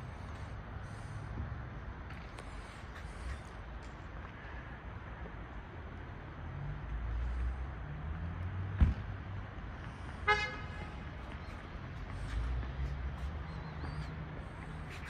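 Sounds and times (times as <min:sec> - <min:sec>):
traffic rumble: 0:00.0 - 0:15.0
car horn toot: 0:10.2 - 0:10.9.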